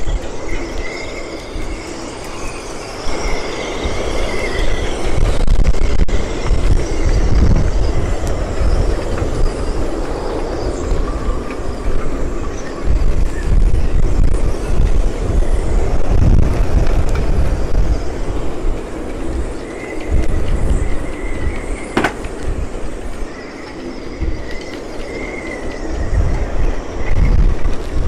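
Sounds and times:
strong wind buffeting microphone: 0.0s - 28.0s
sharp knock: 22.0s - 22.3s.

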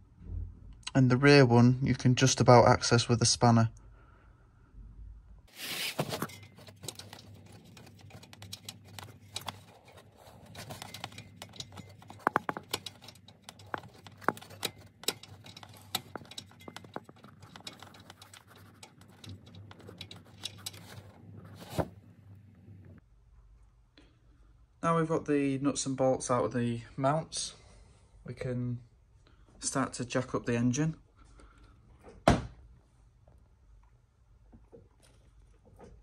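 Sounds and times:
spanner clicking on metal bolt: 10.6s - 21.0s.

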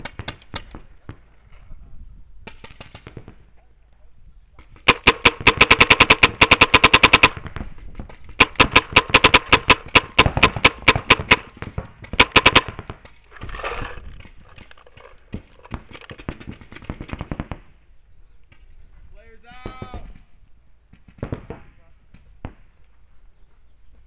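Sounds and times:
paintball marker firing: 4.6s - 14.7s.

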